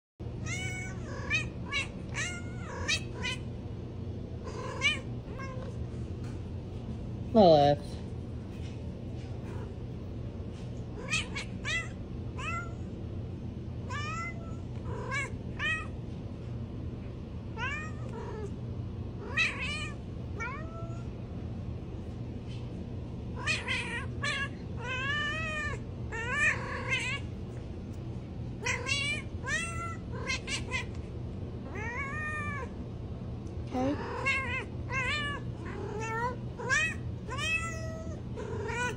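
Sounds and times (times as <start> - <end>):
cat meowing: 0.4 - 3.5, 4.5 - 5.8, 11.0 - 12.9, 13.9 - 16.0, 17.6 - 18.5, 19.2 - 21.1, 23.4 - 27.3, 28.6 - 31.0, 31.7 - 32.7, 34.0 - 38.9.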